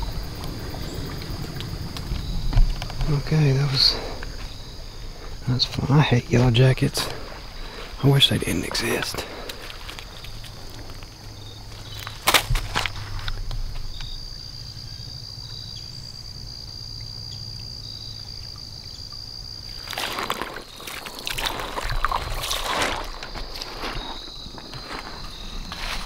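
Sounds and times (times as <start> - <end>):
leaf rustles: 0.0 - 15.1, 19.6 - 26.0
high insect drone: 0.0 - 26.0
footsteps crunching through leaves: 9.5 - 13.9, 19.7 - 26.0.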